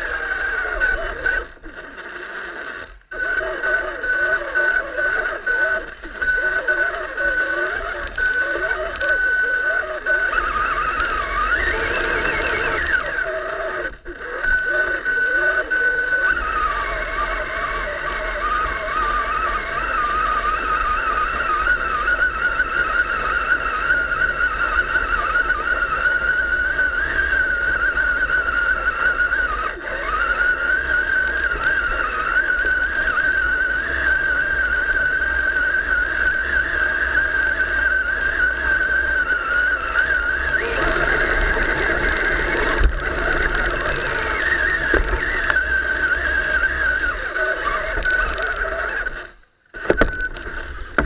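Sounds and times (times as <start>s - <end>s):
toy truck electric motor whine: 0.0s - 51.0s
rough rattling noise: 40.4s - 48.6s.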